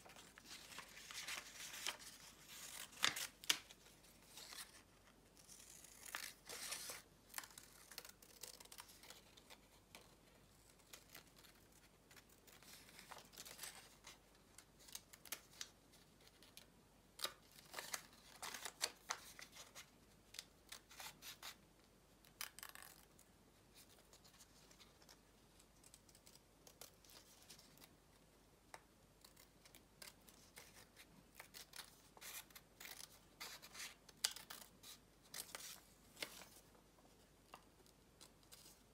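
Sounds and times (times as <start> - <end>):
paper rustling and crinkling: 0.0 - 14.2.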